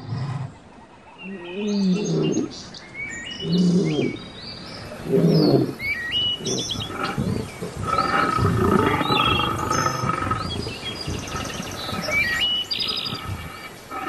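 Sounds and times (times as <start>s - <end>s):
birds chirping: 0.0s - 14.0s
lions roaring: 4.9s - 14.0s.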